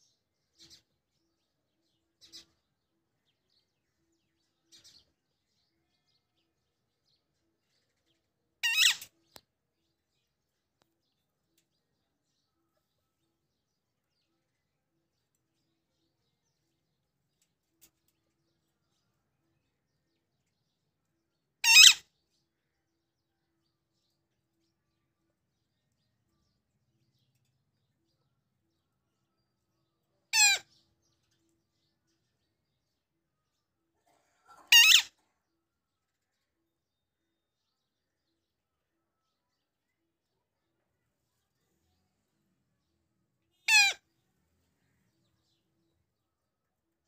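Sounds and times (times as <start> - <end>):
parakeet call: 8.6 - 9.1, 21.6 - 22.1, 30.3 - 30.7, 34.6 - 35.2, 43.6 - 44.0.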